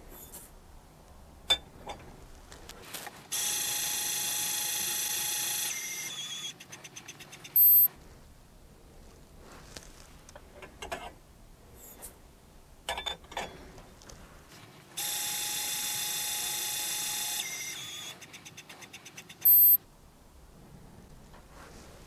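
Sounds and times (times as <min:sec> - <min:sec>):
loud electronic beep: 0:07.6 - 0:07.9, 0:19.5 - 0:19.8.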